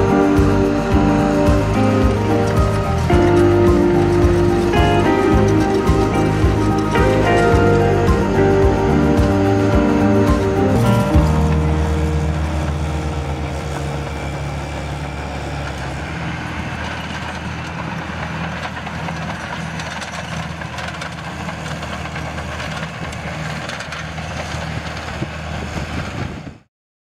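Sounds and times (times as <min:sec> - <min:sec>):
diesel engine droning: 0:00.0 - 0:26.7.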